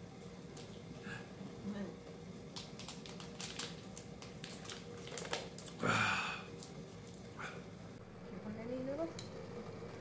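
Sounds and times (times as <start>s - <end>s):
plastic bottle crinkling: 2.6s - 5.8s.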